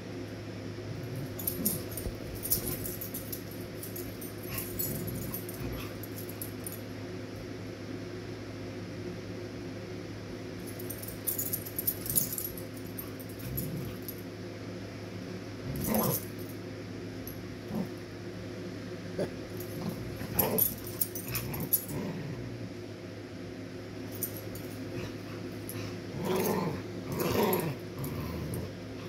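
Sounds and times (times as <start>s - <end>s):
dogs growling: 4.4s - 6.4s, 13.3s - 14.2s, 15.7s - 16.3s, 17.6s - 18.0s, 19.2s - 22.6s, 24.8s - 29.0s.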